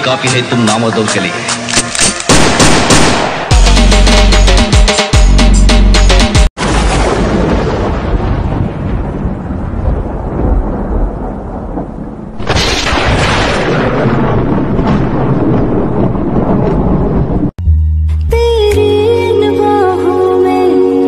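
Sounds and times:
loud thunder clap: 6.6s - 17.6s
thunder rumbling: 6.6s - 17.6s.

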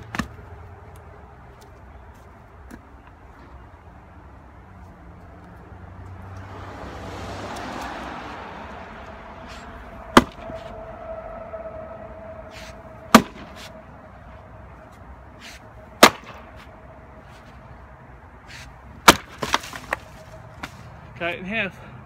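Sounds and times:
rush of noise: 6.6s - 14.7s
maul splitting firewood cracks: 10.1s - 10.5s, 13.1s - 13.6s, 16.0s - 16.5s, 19.0s - 20.8s.

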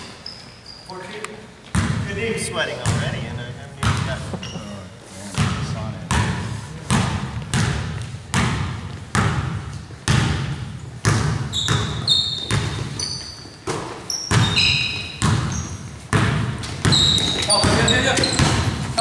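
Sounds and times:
sneakers squeaking on floor: 0.0s - 19.0s
basketball bouncing on hardwood: 1.7s - 2.1s, 2.8s - 3.2s, 5.4s - 13.0s, 13.7s - 18.9s.

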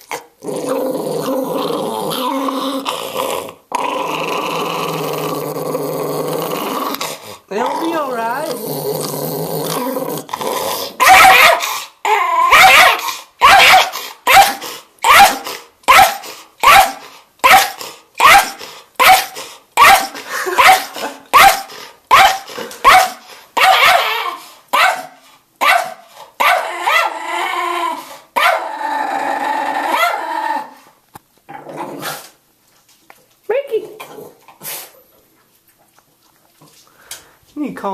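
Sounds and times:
dog growling: 0.0s - 13.2s, 26.6s - 30.9s, 31.5s - 32.4s
dog snarling barks: 6.9s - 11.8s, 12.4s - 27.2s, 29.8s - 30.3s.

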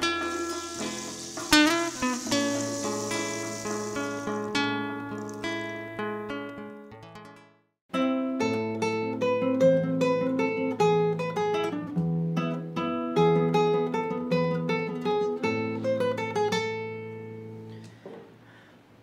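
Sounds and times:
classical guitar fingerpicked: 8.0s - 17.8s.

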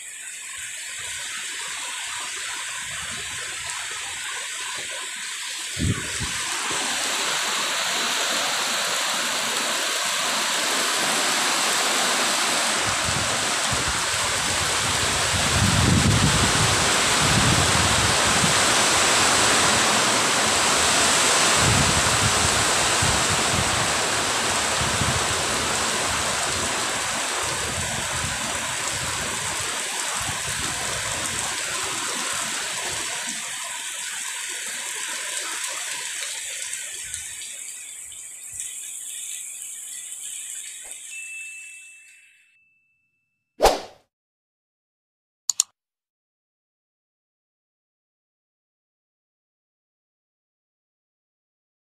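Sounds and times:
heavy rain pouring off roof: 0.0s - 41.3s
wind rumbling on microphone: 5.7s - 7.0s, 12.8s - 31.6s.

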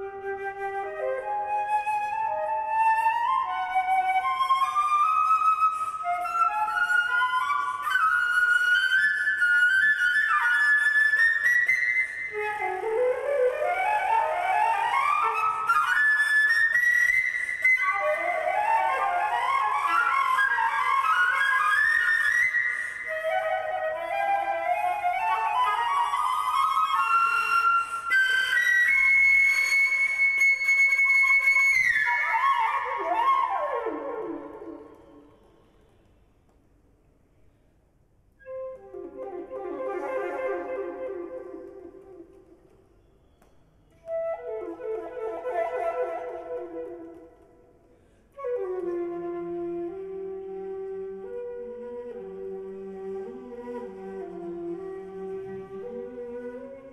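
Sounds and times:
flute playing rapid notes: 0.0s - 35.3s, 38.4s - 42.3s, 44.0s - 47.5s.

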